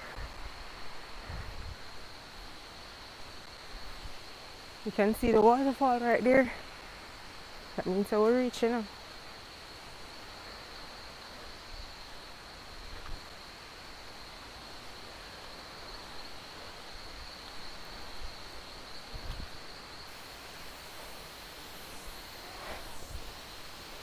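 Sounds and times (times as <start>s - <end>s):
forest background hiss: 0.0s - 24.0s
high-pitched insect drone: 15.5s - 24.0s.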